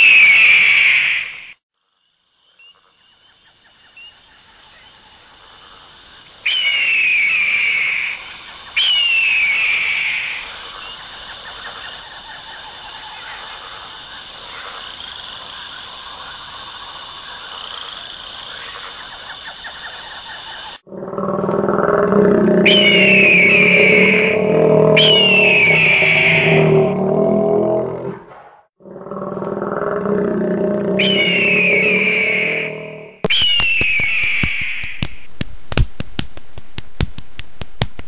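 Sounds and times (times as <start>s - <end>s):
high-pitched animal chorus: 20.9s - 28.1s, 28.8s - 33.2s
loud falling screeches: 21.6s - 28.0s, 30.2s - 34.9s.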